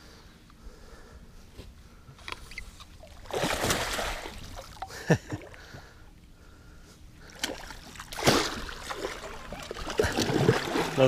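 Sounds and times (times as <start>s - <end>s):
fish splashing in water: 3.0s - 4.9s, 7.2s - 11.0s
water plops: 3.0s - 5.5s, 7.3s - 11.0s.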